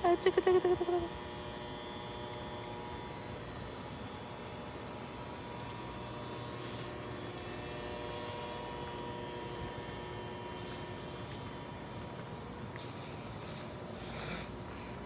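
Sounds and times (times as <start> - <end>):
steady background hum: 0.0 - 15.0
faint whining tones: 1.1 - 15.0.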